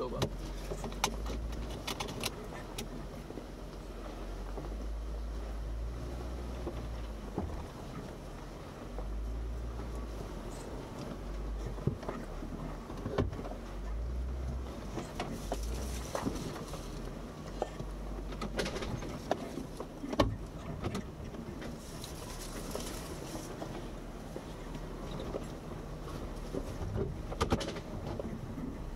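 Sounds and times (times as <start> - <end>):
engine rumble: 0.0 - 28.9
knocks and clunks: 6.6 - 8.0, 11.6 - 16.7, 17.6 - 21.8, 26.3 - 28.8.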